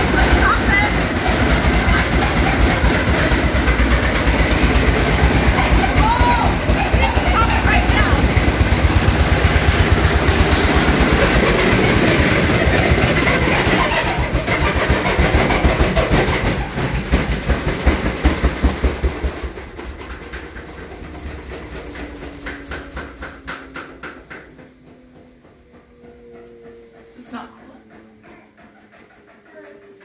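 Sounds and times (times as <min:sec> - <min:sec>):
falling whine of washing machine: 0:00.0 - 0:30.0
washing machine drum knocking: 0:00.0 - 0:30.0.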